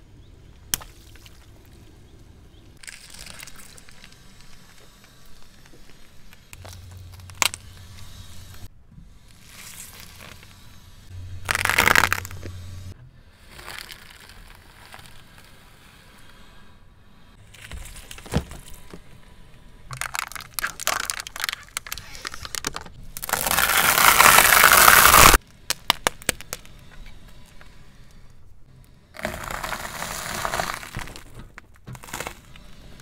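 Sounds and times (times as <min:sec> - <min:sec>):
plastic bags crackling and popping: 0:02.8 - 0:04.8, 0:06.3 - 0:08.6, 0:11.4 - 0:12.8, 0:13.5 - 0:15.5, 0:19.9 - 0:26.7, 0:29.2 - 0:32.5
dry bread crunching under tyre: 0:02.8 - 0:08.7, 0:09.3 - 0:10.6, 0:11.2 - 0:15.7, 0:17.4 - 0:19.2, 0:19.9 - 0:27.6, 0:29.2 - 0:33.0
liquid bag bursting with a rush: 0:23.2 - 0:25.4.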